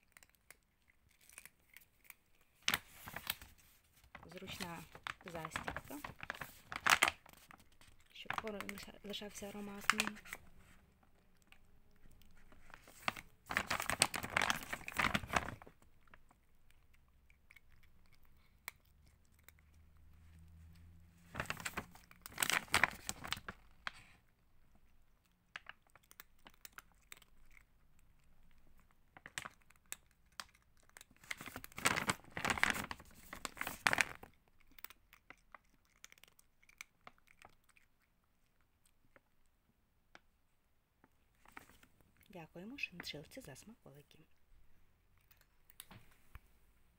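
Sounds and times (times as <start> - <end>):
plastic bag crinkling: 0.0 - 10.8, 11.4 - 16.4, 21.3 - 24.1, 28.7 - 37.8, 41.4 - 42.0
faint rustles and clicks: 0.0 - 16.8, 41.0 - 46.9.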